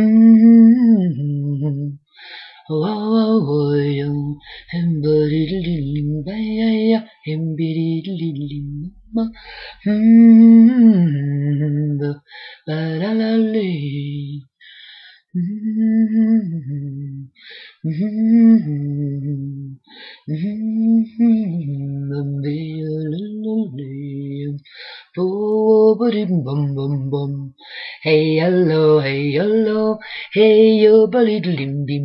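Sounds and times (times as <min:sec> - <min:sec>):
person singing nonsense syllables: 0:02.7 - 0:12.2.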